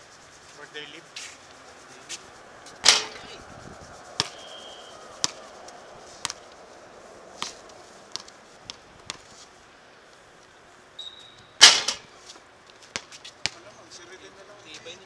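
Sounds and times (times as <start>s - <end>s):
loud bang: 2.8s - 3.4s, 11.6s - 12.1s
basketball bouncing on hard court: 4.2s - 4.5s, 5.2s - 5.4s, 7.4s - 9.3s
short high squeaks: 4.3s - 5.0s, 11.0s - 11.7s.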